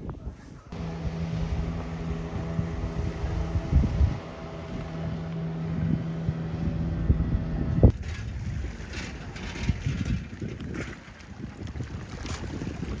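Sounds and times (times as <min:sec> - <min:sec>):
wind buffeting microphone: 0:00.0 - 0:13.0
engine humming: 0:00.7 - 0:10.2.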